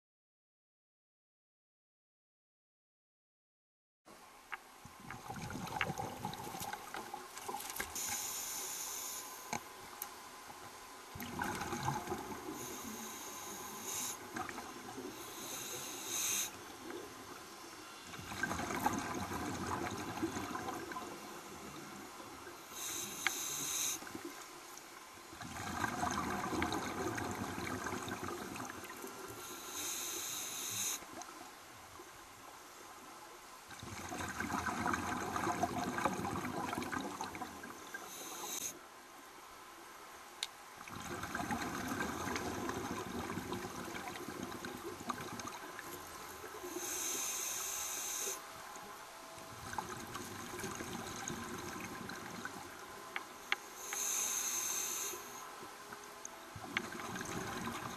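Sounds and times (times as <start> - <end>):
scuba regulator breathing underwater: 8.0 - 9.5, 12.4 - 14.4, 15.0 - 16.6, 22.7 - 24.1, 29.4 - 31.1, 38.0 - 38.8, 46.6 - 48.4, 53.8 - 55.4.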